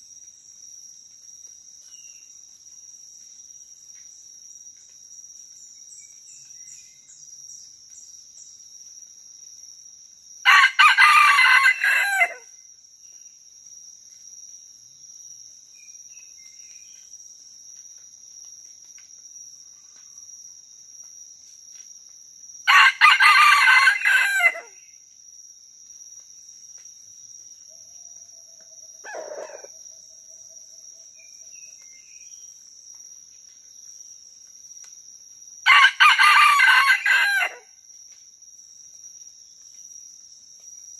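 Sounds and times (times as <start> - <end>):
high insect drone: 0.0 - 40.9
rooster crowing: 10.5 - 12.5, 22.7 - 24.8, 29.0 - 29.7, 35.7 - 37.7.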